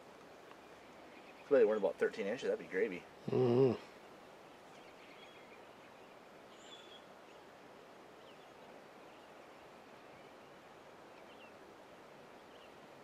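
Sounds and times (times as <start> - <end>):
faint high bird chirps: 4.7 - 7.4.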